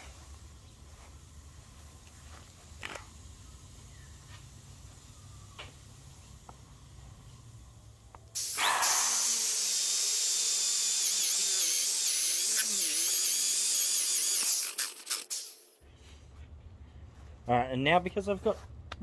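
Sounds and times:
electric drill whining: 8.4s - 15.8s.

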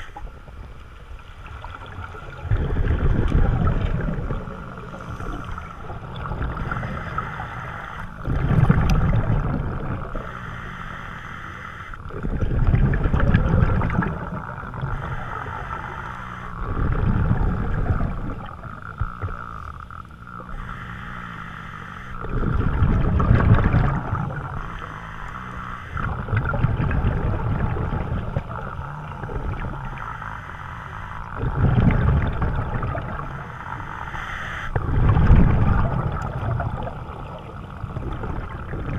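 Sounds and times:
exhaled bubbles gurgling underwater: 0.0s - 38.9s
steady hiss: 3.5s - 12.1s, 14.3s - 22.8s, 27.6s - 34.8s.

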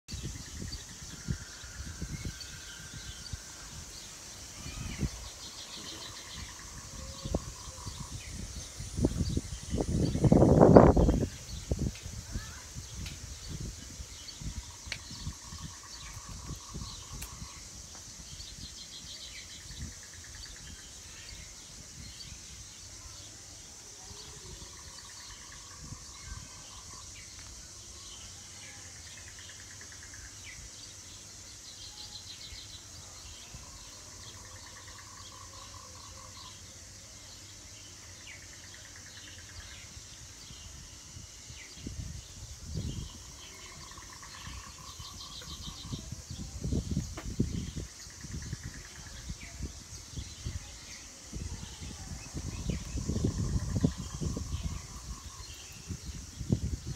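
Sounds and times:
birds chirping in trills: 0.1s - 56.9s
high insect hum: 0.1s - 56.9s
low microphone rumbles: 4.6s - 18.7s, 41.7s - 50.7s, 51.3s - 56.9s.

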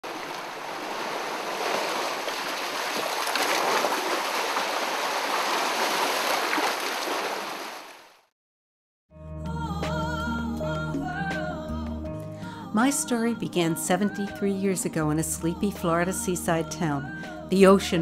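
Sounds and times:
ocean surf over rocks: 0.0s - 7.8s.

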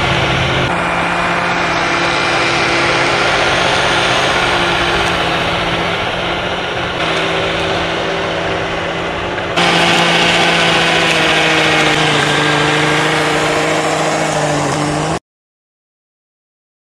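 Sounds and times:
electric motor whine: 0.0s - 15.2s
toy truck drivetrain: 0.0s - 15.2s.

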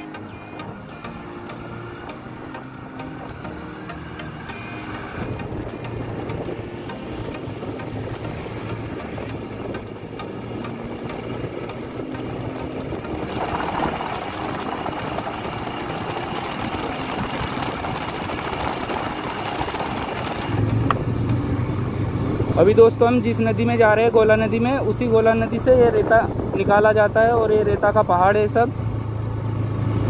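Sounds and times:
motorcycle engine running: 0.0s - 30.0s
wind noise: 4.4s - 22.8s, 24.2s - 27.7s.

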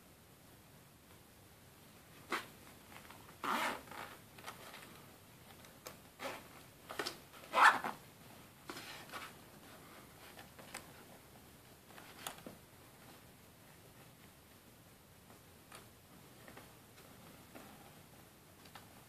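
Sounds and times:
zipper scraping: 2.2s - 2.6s, 3.4s - 4.8s, 6.2s - 6.6s, 7.4s - 8.0s.

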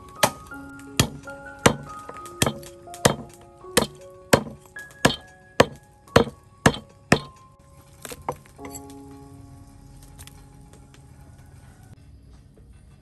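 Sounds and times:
soft background music: 0.0s - 13.0s
cleaver chopping meat on wood: 1.0s - 7.4s.

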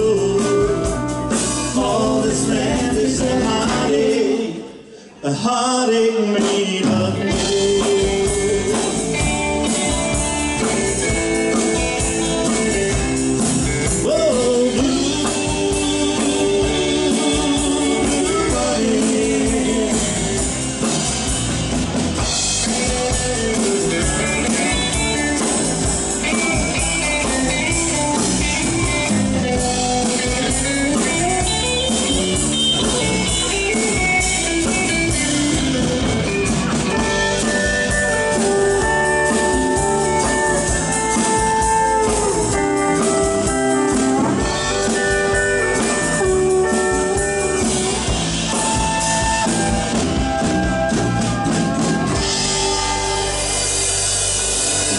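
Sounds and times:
held melody line: 0.0s - 4.5s, 6.8s - 54.9s
live country band playing: 0.0s - 54.9s.

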